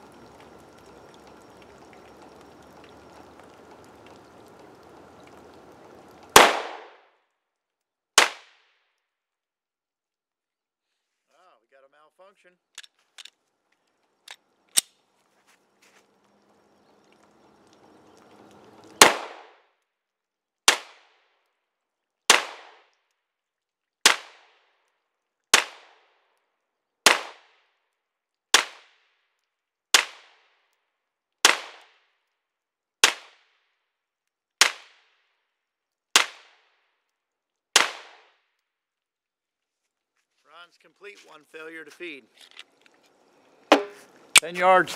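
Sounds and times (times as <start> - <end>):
pistol shots: 6.3 - 6.9, 19.0 - 19.5, 37.8 - 38.2.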